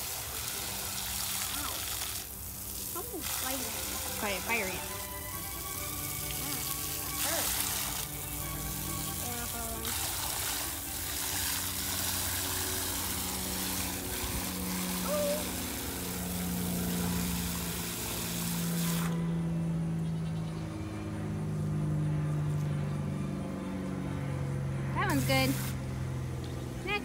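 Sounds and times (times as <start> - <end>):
hose water spraying into bucket: 0.0 - 19.2, 25.0 - 25.8
low hum changing pitch: 2.6 - 26.8.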